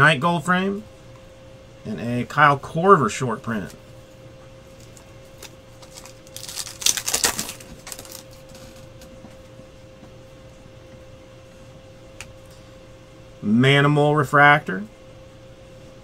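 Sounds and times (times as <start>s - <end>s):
faint steady hum: 0.0s - 16.0s
crinkly rustling of cards: 4.7s - 9.1s.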